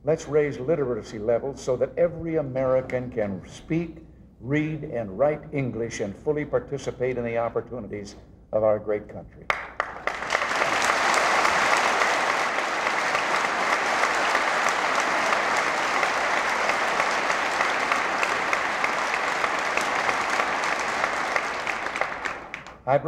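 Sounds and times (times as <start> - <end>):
large audience applauding: 9.5 - 22.8.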